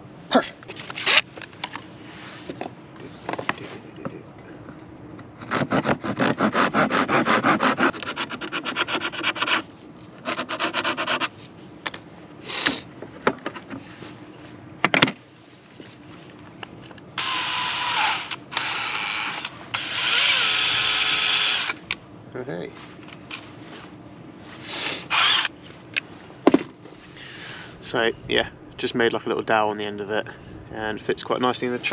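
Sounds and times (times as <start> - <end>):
handsaw cutting wood: 5.4 - 11.3, 17.2 - 21.8
cordless drill whirring: 17.2 - 21.8, 25.1 - 25.5.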